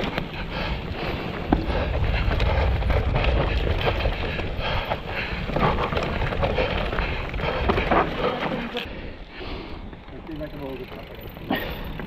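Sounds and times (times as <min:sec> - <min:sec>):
wind rumble on microphone: 0:00.0 - 0:08.0
mountain bike rattling: 0:00.0 - 0:12.0.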